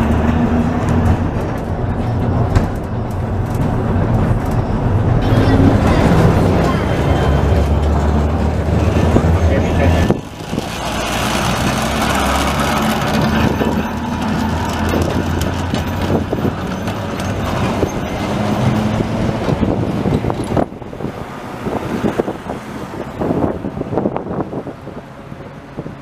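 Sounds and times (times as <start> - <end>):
tram motor hum: 0.0 - 26.0
tram wheels clicking over track: 10.2 - 20.6.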